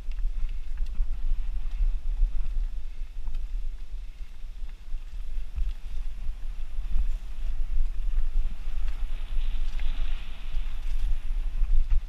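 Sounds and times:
bike and tyres rattling: 0:00.0 - 0:12.0
wind buffeting microphone: 0:00.0 - 0:12.0.

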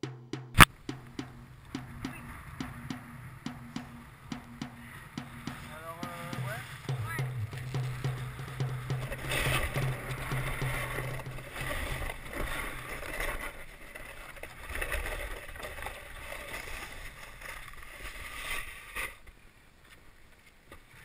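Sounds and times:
snowboard scraping on icy snow: 0:05.7 - 0:19.6.

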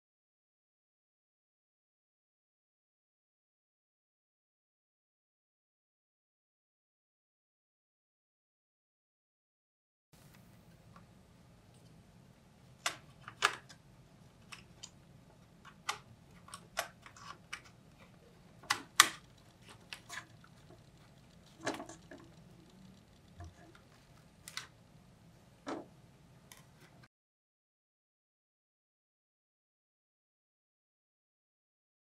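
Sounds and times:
faint steady hum: 0:10.2 - 0:27.1.

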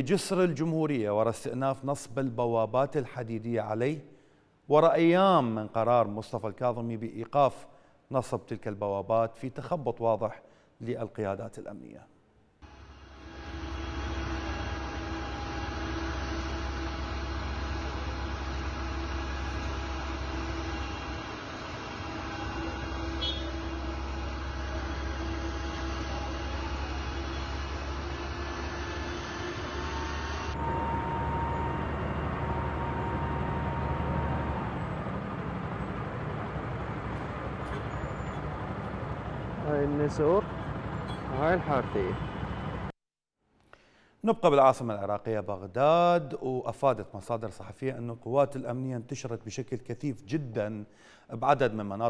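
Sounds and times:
cars driving past: 0:12.6 - 0:42.9
constant hum: 0:12.6 - 0:42.9
heavy truck engine rumbling: 0:12.6 - 0:42.9.

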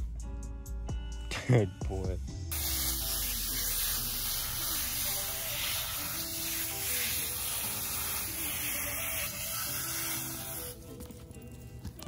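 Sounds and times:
background music: 0:00.0 - 0:12.0
hose nozzle spraying water: 0:02.5 - 0:10.8.

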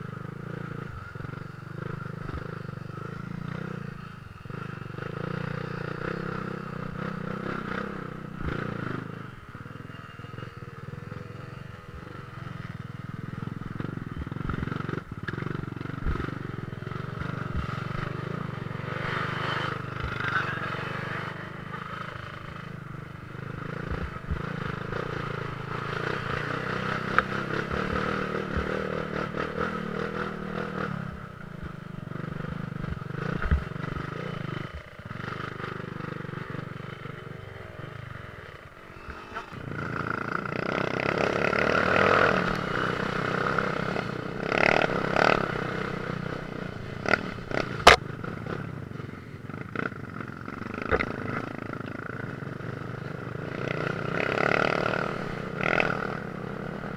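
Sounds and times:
dirt bike engine running: 0:39.1 - 0:56.9.

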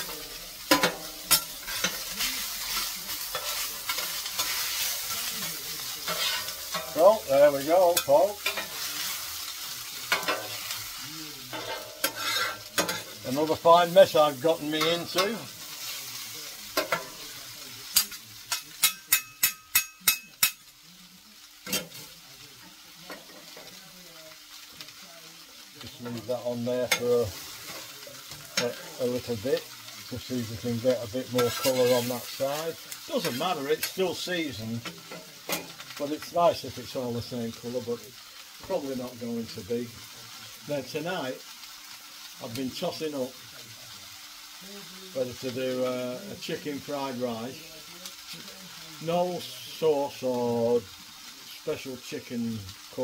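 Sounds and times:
metal utensil clanging on griddle: 0:00.0 - 0:10.8, 0:11.4 - 0:20.7, 0:21.6 - 0:22.1, 0:26.0 - 0:29.4, 0:30.3 - 0:34.2, 0:34.8 - 0:36.1
onions sizzling on a griddle: 0:00.0 - 0:53.0.

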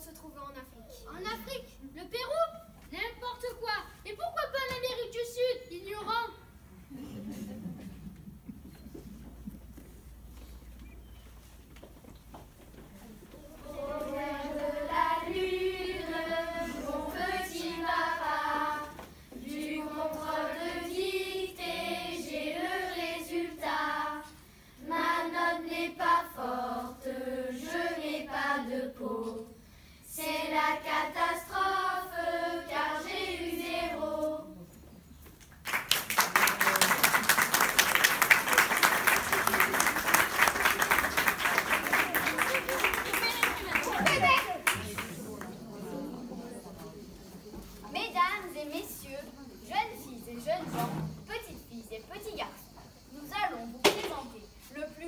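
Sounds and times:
children singing together: 0:13.5 - 0:34.5
audience applauding: 0:35.6 - 0:45.6.

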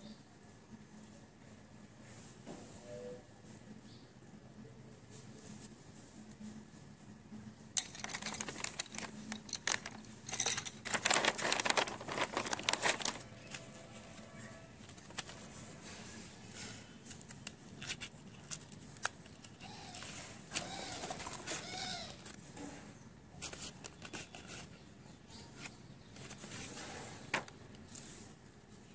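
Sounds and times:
packaging crinkling: 0:07.8 - 0:15.6, 0:17.0 - 0:22.4.

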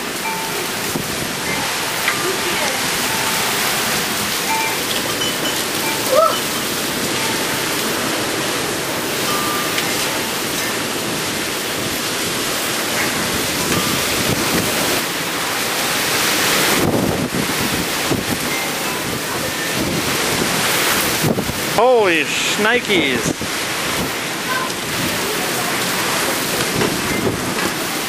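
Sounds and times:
wind buffeting microphone: 0:00.0 - 0:21.8, 0:23.3 - 0:28.0
heavy rain pouring: 0:00.0 - 0:28.0.

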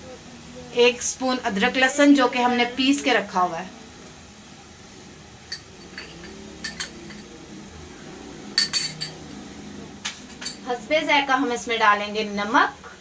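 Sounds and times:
metal spoon tapping pot rim: 0:05.5 - 0:07.2.

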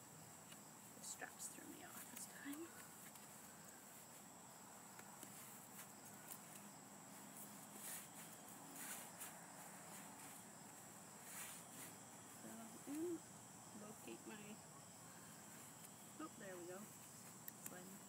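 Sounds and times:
high insect trill: 0:00.0 - 0:18.0
nylon fabric rustling: 0:01.8 - 0:13.2.

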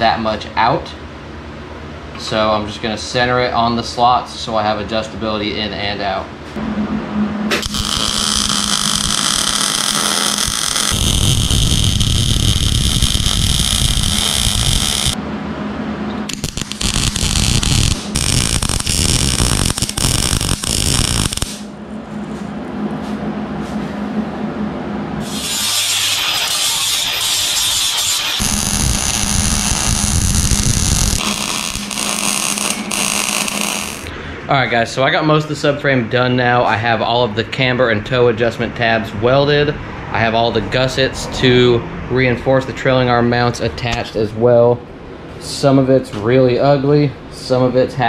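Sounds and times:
welder arc crackling: 0:07.5 - 0:15.2, 0:16.3 - 0:21.7, 0:25.2 - 0:34.1
angle grinder on steel: 0:07.6 - 0:15.2, 0:16.3 - 0:21.6, 0:25.2 - 0:34.1.

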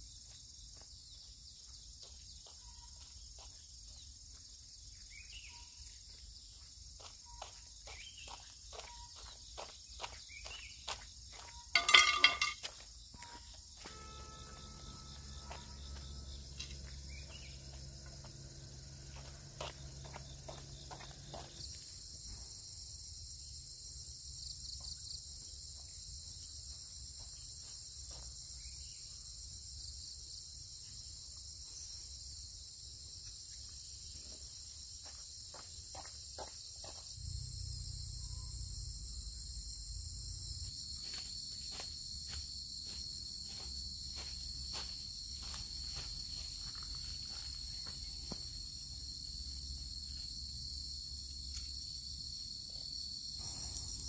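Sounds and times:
footsteps on concrete road: 0:00.0 - 0:22.4, 0:24.8 - 0:28.8, 0:34.3 - 0:37.2, 0:40.6 - 0:50.5
insects trilling: 0:00.0 - 0:54.0
low hum with steady tones: 0:13.8 - 0:21.7, 0:37.3 - 0:41.2.

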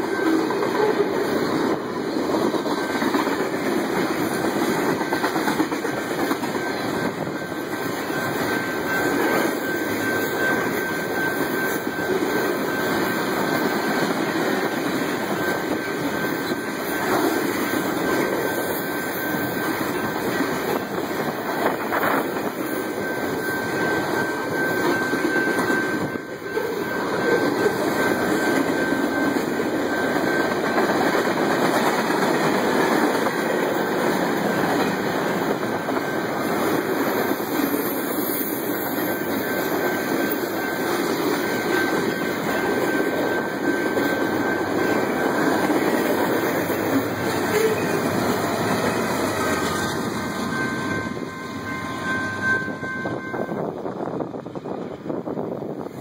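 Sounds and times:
thin high tone: 0:00.0 - 0:31.6, 0:33.7 - 0:53.8
freight train rumble and clatter: 0:00.0 - 0:56.0.

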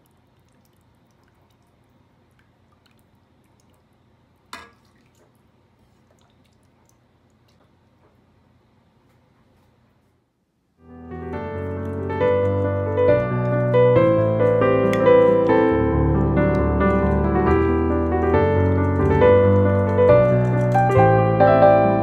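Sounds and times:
background piano music: 0:10.8 - 0:22.0.

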